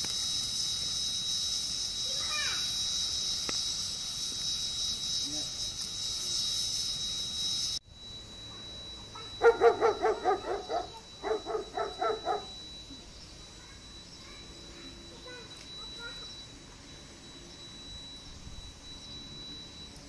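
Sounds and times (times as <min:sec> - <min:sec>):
steady high hiss: 0:00.0 - 0:20.0
dog yapping: 0:09.2 - 0:12.5.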